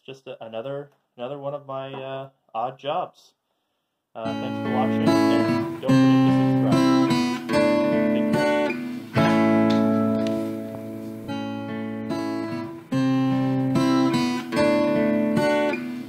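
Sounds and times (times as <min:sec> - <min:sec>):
strummed acoustic guitar chords: 0:04.2 - 0:16.0.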